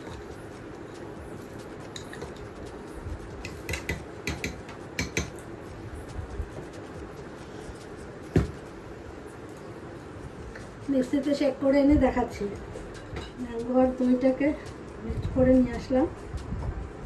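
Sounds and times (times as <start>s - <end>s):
steady low hum: 0.0s - 17.0s
metal spoon tapping metal jar: 3.5s - 5.4s.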